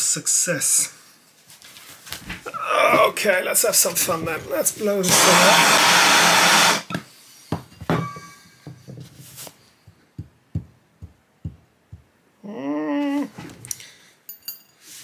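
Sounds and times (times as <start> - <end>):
blowtorch hissing: 5.0 - 6.9.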